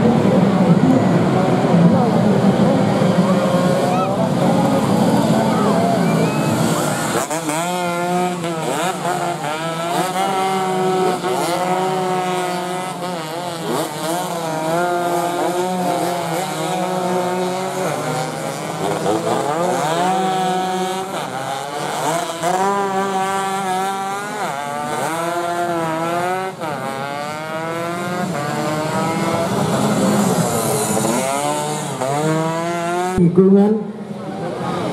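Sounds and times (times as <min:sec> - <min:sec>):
racing motorcycles passing: 0:00.0 - 0:34.9.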